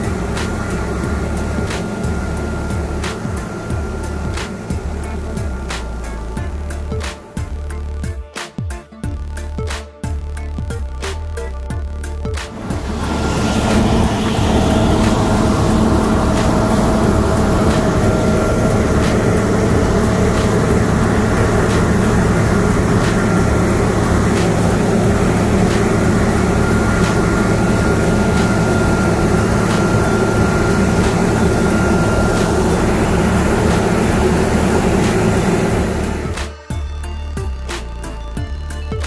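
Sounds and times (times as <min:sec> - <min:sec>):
combine harvester droning: 0:00.0 - 0:08.0, 0:12.0 - 0:38.3
faint high whine: 0:12.5 - 0:36.7.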